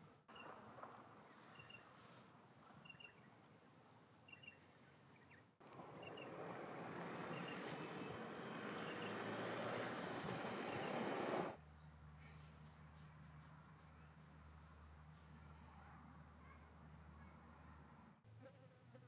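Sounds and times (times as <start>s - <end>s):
small birds chirping: 4.2s - 6.4s
steady rushing noise: 5.8s - 11.6s.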